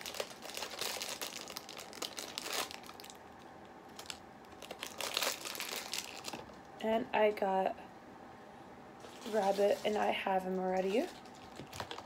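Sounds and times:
plastic wrapper crinkling and tearing: 0:00.0 - 0:03.2, 0:03.9 - 0:06.6, 0:09.0 - 0:12.0.

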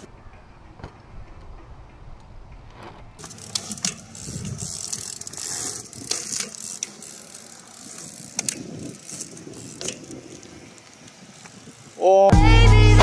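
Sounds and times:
bike rear hub ticking: 0:00.0 - 0:12.1
bike tyres hissing on asphalt: 0:02.8 - 0:12.3.

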